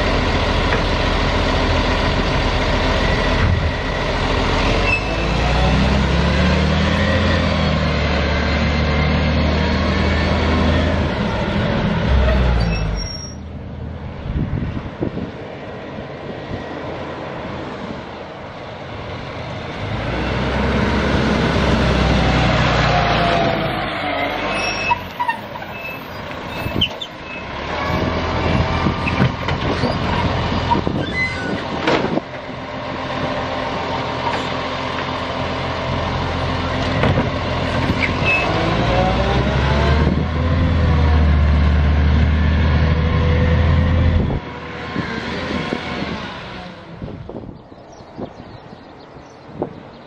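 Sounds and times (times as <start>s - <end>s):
diesel engine running: 0.0s - 48.0s
wind noise: 10.4s - 19.9s, 25.7s - 34.0s, 36.9s - 41.0s, 42.5s - 50.0s.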